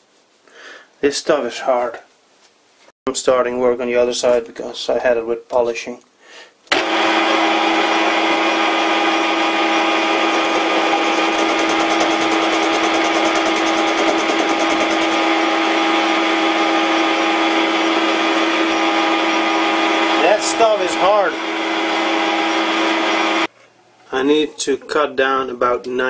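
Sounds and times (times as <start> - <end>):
tool cutting steel: 6.7 - 23.5
metal lathe gears whining: 6.8 - 22.5.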